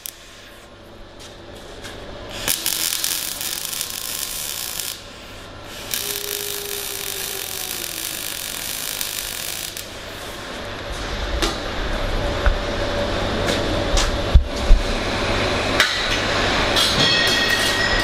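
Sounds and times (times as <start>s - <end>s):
welding arc crackling hiss: 0.0s - 0.7s, 1.3s - 10.7s.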